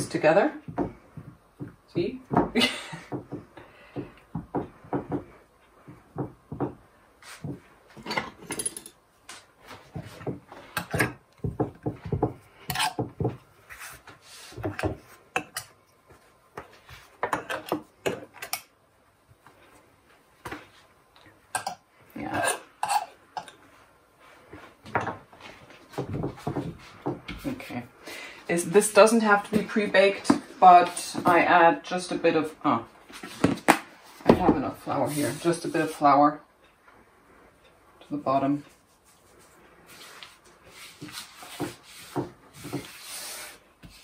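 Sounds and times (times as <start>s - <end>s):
dish knocking on wooden counter: 0.7s - 5.3s, 6.1s - 6.8s, 11.4s - 12.4s
knife scraping ceramic dish: 12.6s - 13.1s.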